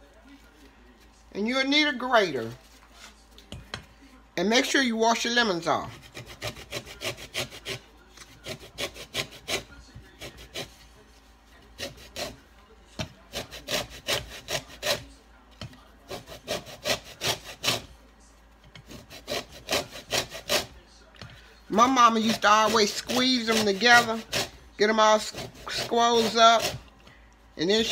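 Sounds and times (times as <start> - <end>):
lemon rasping on a grater: 5.8 - 11.0, 11.7 - 15.1, 16.0 - 17.9, 18.8 - 20.8, 21.7 - 26.9.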